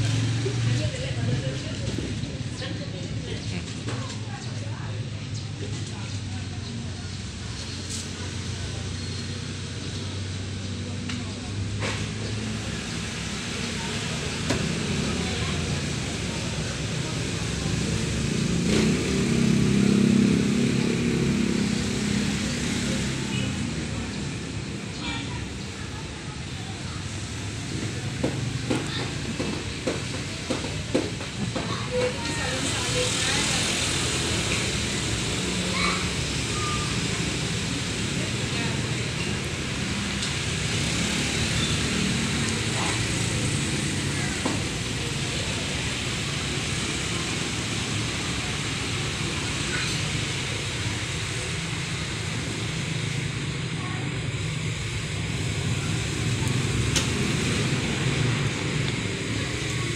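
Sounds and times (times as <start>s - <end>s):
small motorcycle engine running: 12.4s - 24.2s
rain on wet ground: 32.2s - 59.9s.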